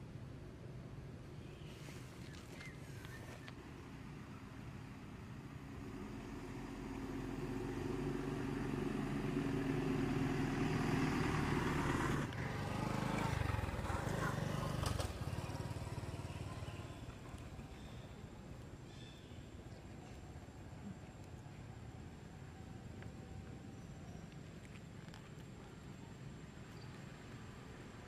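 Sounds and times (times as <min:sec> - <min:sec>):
motorbike engine passing by: 0:05.6 - 0:18.2.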